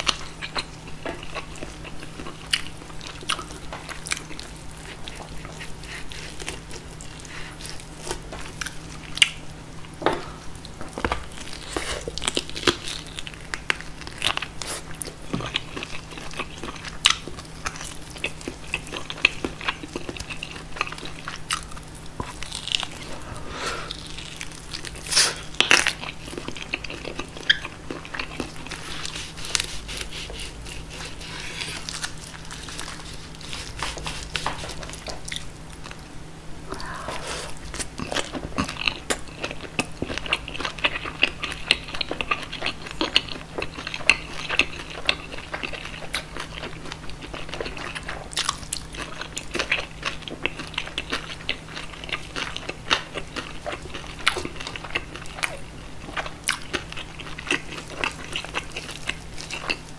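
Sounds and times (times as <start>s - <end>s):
chewing crunchy food: 0.0s - 59.9s
faint steady hum: 0.0s - 59.9s.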